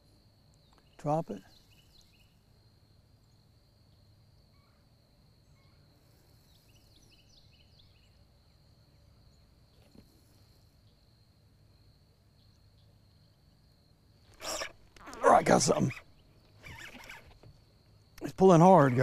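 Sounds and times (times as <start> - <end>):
bird chirps: 0.6 - 2.4, 3.2 - 9.9
high-pitched insect trill: 10.2 - 19.0.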